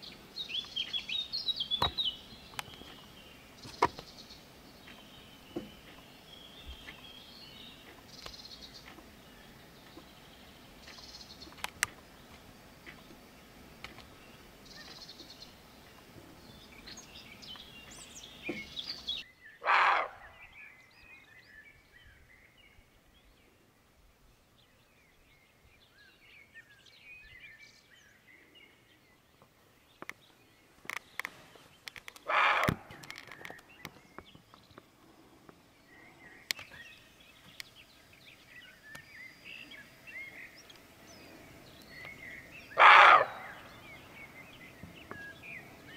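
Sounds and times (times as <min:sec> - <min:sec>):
songbirds chirping and singing: 0:00.0 - 0:45.9
sharp clicks: 0:07.8 - 0:09.1, 0:10.8 - 0:13.2, 0:13.8 - 0:14.2, 0:30.8 - 0:34.9, 0:36.4 - 0:36.8.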